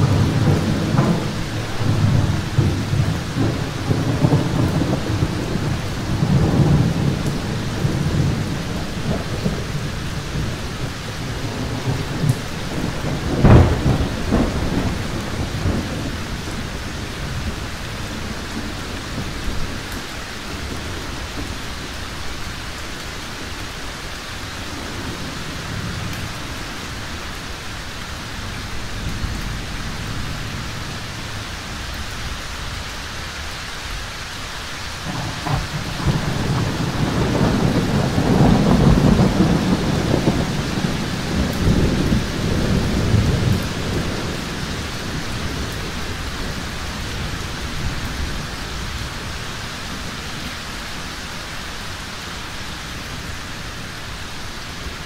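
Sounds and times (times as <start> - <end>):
sharp thunderclap: 0.0 - 19.8, 35.0 - 49.0
rolling thunder: 0.0 - 32.8, 34.9 - 51.9
steady rain: 0.0 - 55.0.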